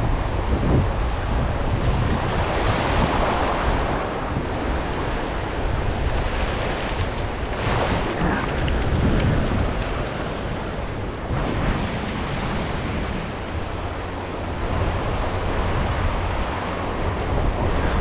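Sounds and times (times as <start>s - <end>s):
surf waves washing up beach: 0.0s - 18.0s
wind rumbling on microphone: 0.0s - 18.0s.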